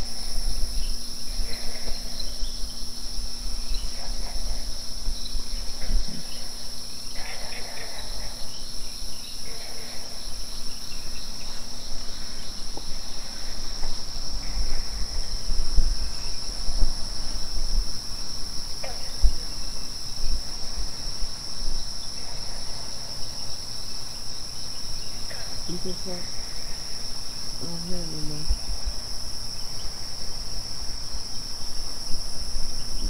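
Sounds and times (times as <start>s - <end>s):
crickets trilling: 0.0s - 33.0s
low rumbles on microphone: 10.2s - 22.8s.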